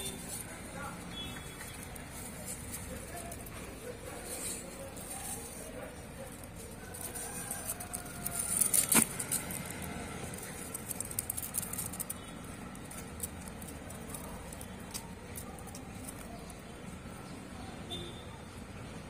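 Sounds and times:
hamster scratching in cardboard tube: 1.8 - 16.3.

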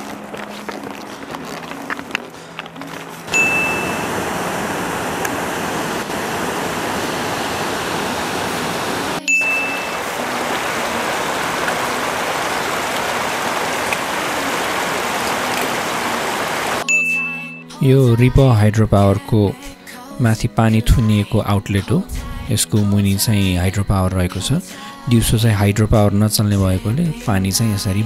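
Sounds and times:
mountain stream flowing over stones: 0.0 - 16.8
short high ding: 3.3 - 4.1, 9.2 - 10.0, 16.8 - 17.7.

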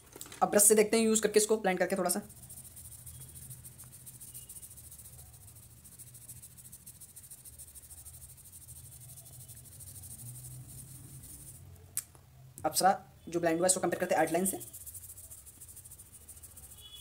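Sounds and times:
high-pitched insect trill: 2.2 - 11.6, 14.2 - 17.0.

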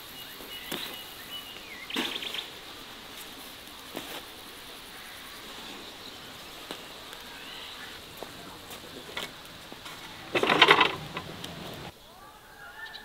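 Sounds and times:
steady hiss: 0.0 - 13.0
faint chirping: 4.6 - 13.0
short clatter: 9.9 - 11.9.

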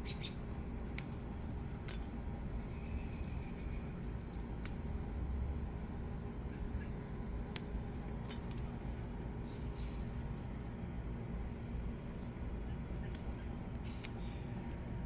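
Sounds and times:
steady low rumble: 0.0 - 15.0
pea vines clicking and snapping: 0.1 - 2.2, 3.9 - 4.8, 7.5 - 8.8, 12.1 - 14.4.

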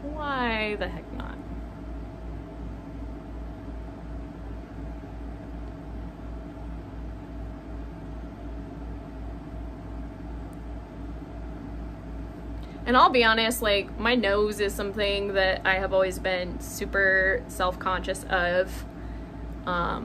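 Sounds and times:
low hum with hiss: 0.0 - 20.0.

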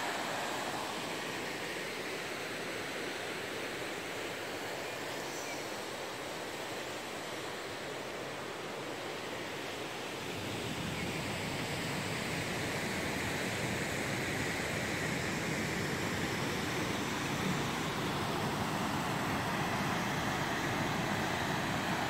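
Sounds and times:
waterfall rushing: 0.0 - 2.2.

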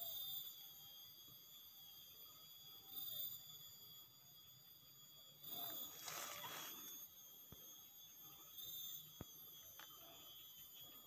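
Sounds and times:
faint high-pitched whine: 0.0 - 11.0
soft rustle: 6.0 - 6.9.

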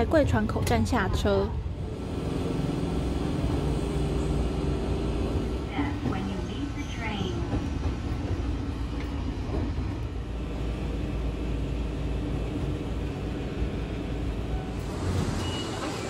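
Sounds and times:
train rumbling: 0.0 - 16.0.

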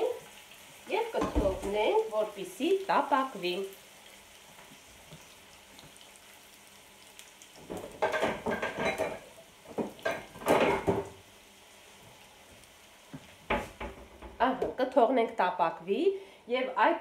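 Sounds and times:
potatoes sizzling in oil: 0.0 - 17.0
clattering of pans and dishes: 1.2 - 1.8, 7.6 - 11.2, 13.5 - 14.4.

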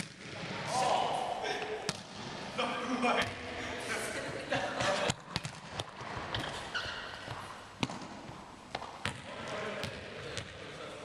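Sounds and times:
ball bouncing on wooden floor: 7.2 - 9.2.

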